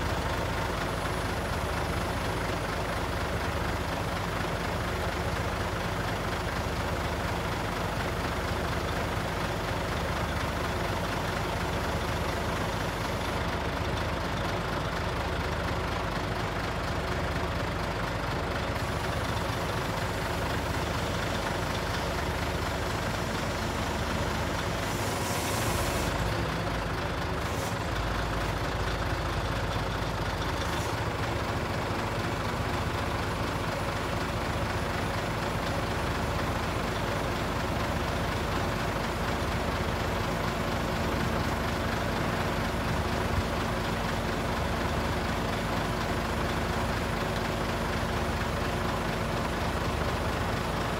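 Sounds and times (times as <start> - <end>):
diesel truck engine running: 0.0 - 50.9
brief hiss: 24.7 - 26.2.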